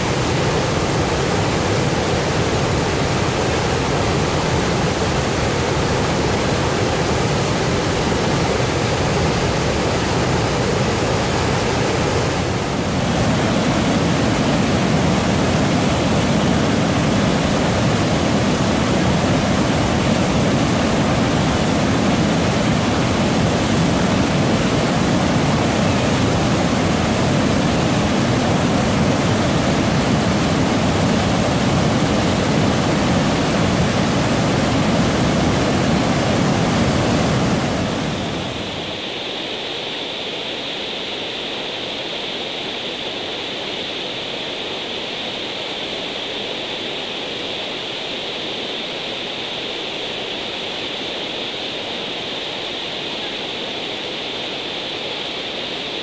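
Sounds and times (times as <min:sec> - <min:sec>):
waterfall rushing: 0:00.0 - 0:39.0.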